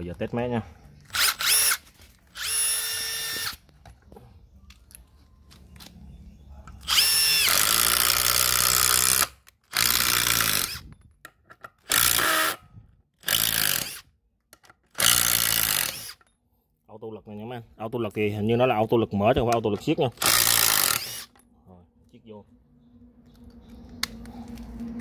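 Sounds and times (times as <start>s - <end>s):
impact driver driving screws: 11.8s - 12.6s, 14.9s - 16.2s, 20.2s - 21.4s.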